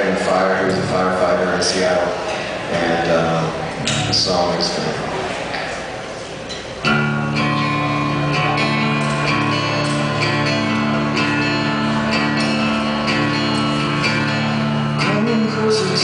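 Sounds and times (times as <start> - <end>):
acoustic guitar strumming: 0.0 - 2.1, 6.8 - 16.0.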